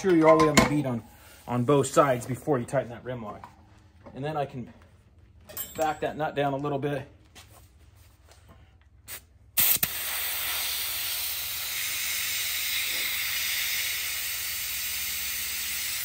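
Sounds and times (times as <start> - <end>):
compressed air hissing: 9.1 - 16.0.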